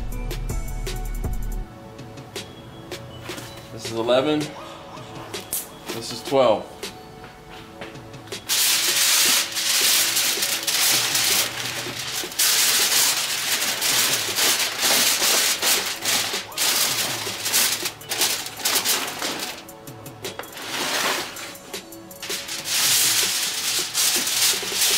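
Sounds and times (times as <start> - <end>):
aluminum foil crinkling: 8.4 - 24.9.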